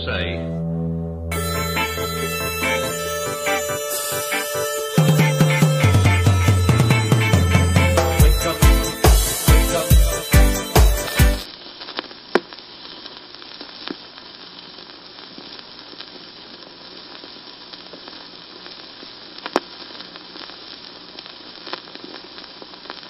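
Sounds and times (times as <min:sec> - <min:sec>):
steady hiss: 0:07.2 - 0:23.0
faint crackle: 0:11.5 - 0:23.0.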